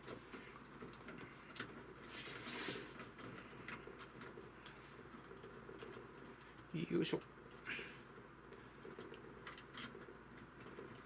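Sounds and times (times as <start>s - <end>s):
small metal parts clicking: 8.9s - 11.0s.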